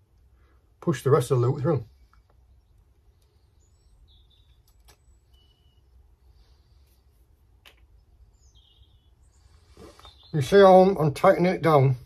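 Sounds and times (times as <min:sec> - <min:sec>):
faint high chirps: 0:01.9 - 0:07.0.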